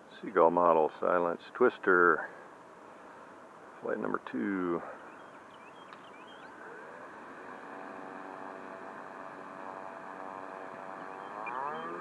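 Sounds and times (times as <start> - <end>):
model plane electric motor whine: 7.4 - 12.0.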